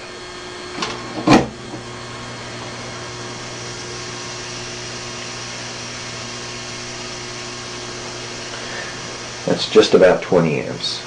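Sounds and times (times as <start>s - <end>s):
low electrical hum: 0.0s - 11.0s
fizzing hiss of gas bubbles: 2.3s - 9.9s.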